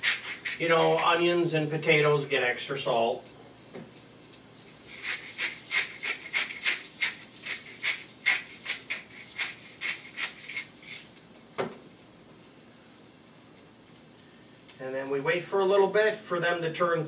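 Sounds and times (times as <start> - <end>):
salt grinder grinding: 0.0 - 1.2, 4.7 - 11.2.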